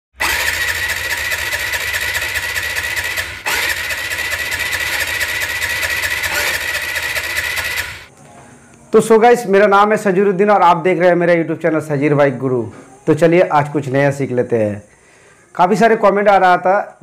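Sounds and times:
motorcycle engine cranking: 0.2 - 8.1.

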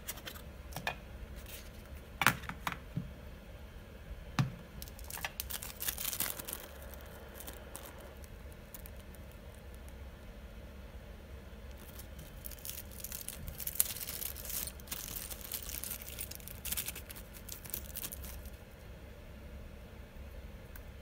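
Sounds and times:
plastic bag crinkling: 4.8 - 10.0, 11.7 - 18.6
parts shaken out: 11.8 - 18.6.

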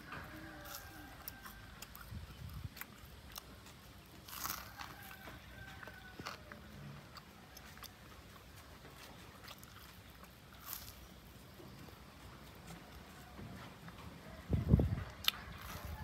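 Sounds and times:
person chewing with clicks: 0.2 - 13.1, 15.0 - 16.0
loud crunch of a bite: 0.6 - 11.2, 15.2 - 16.0.

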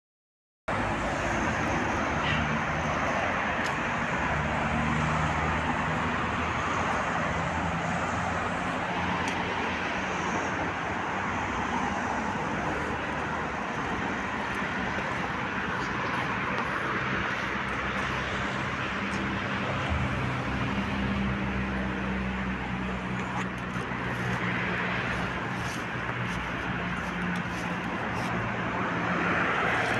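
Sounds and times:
passing cars: 0.7 - 29.9.

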